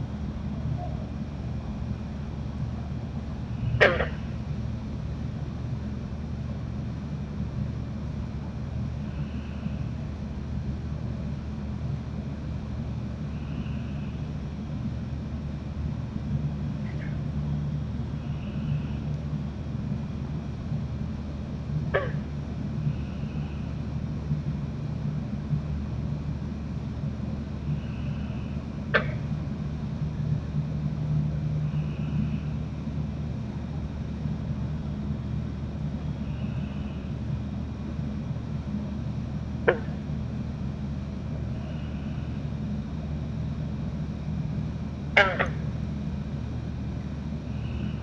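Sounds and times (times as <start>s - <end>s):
steady low hum: 0.0s - 48.0s
soft animal call: 0.7s - 1.2s, 3.6s - 4.4s, 22.0s - 22.3s, 45.2s - 45.7s.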